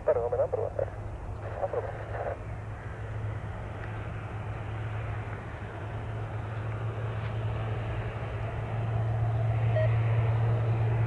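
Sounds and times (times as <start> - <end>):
voices: 0.0 - 2.4
propeller airplane engines droning: 0.0 - 11.0.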